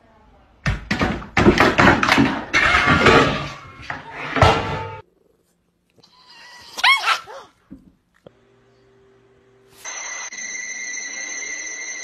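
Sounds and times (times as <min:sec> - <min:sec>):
thumps and clatter of landing: 0:00.7 - 0:05.0
cat yowl: 0:06.0 - 0:07.6.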